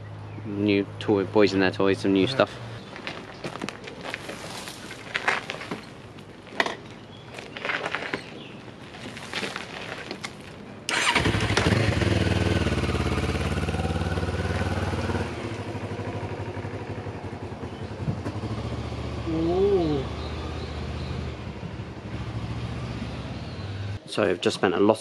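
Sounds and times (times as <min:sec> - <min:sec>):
motorcycle engine starting and running: 0:10.9 - 0:24.0.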